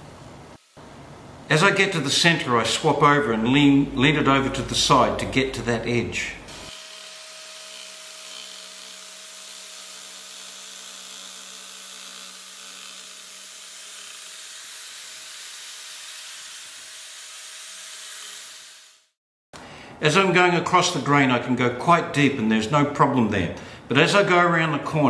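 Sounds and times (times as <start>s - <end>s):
power chisel cutting wood: 6.5s - 19.1s.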